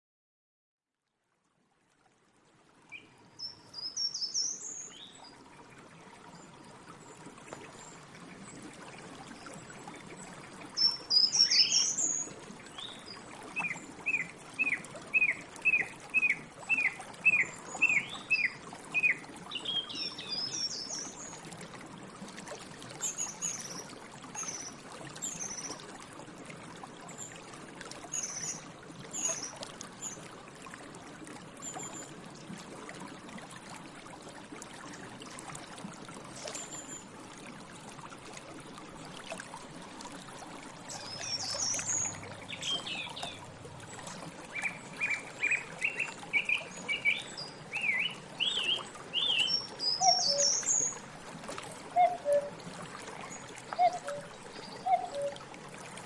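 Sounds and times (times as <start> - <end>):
flowing water: 1.0 - 56.0
song thrush singing: 2.9 - 5.2, 10.8 - 21.2, 40.9 - 43.4, 44.5 - 51.0, 52.0 - 52.5, 53.8 - 55.3.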